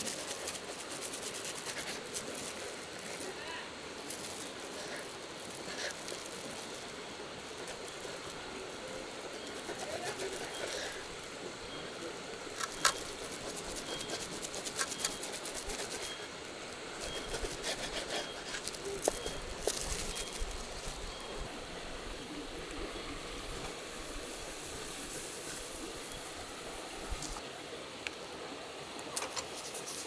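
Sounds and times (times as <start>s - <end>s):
plastic wrap crinkling: 4.0s - 6.9s, 17.1s - 21.0s.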